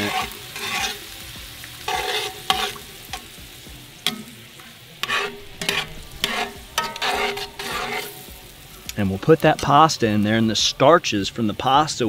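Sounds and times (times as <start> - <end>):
low sizzle from hot pan: 0.0 - 12.0
tongs clicking against pan: 1.9 - 3.3, 4.0 - 4.4, 5.0 - 8.2
tongs swishing in sauce: 5.0 - 8.5.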